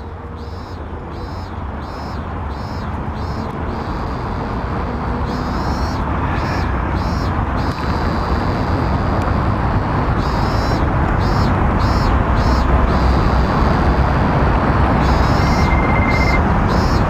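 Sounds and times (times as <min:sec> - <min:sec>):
traffic rumble: 0:00.0 - 0:17.0
short high chirps: 0:15.0 - 0:17.0.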